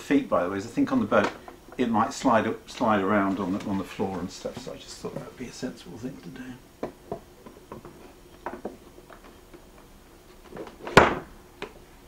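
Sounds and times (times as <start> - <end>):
speaker set down with knock: 10.8 - 11.3.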